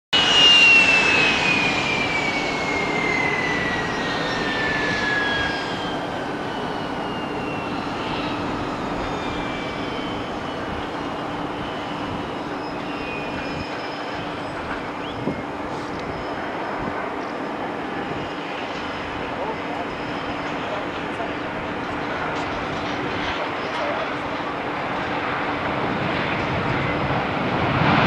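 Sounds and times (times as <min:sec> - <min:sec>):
jet engine rumble: 0:00.1 - 0:28.0
jet engine whine: 0:00.1 - 0:28.0.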